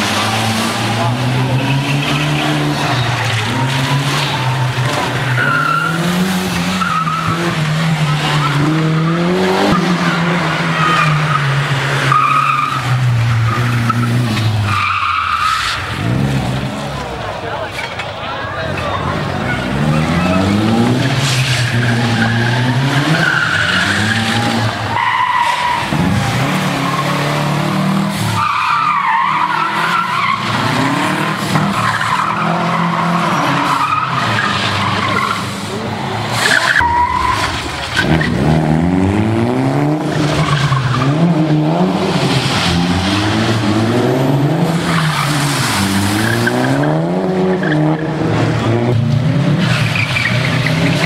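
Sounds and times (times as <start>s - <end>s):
tyres squealing: 0.0s - 16.0s, 18.8s - 38.4s
rally car engines revving: 0.0s - 51.0s.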